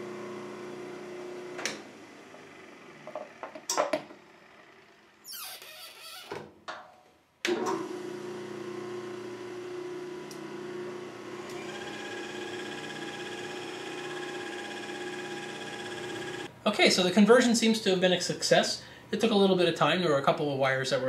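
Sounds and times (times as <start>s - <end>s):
drum sander motor running: 0.0s - 3.2s, 7.8s - 16.5s
feed motor whine: 0.0s - 3.2s, 7.5s - 16.5s.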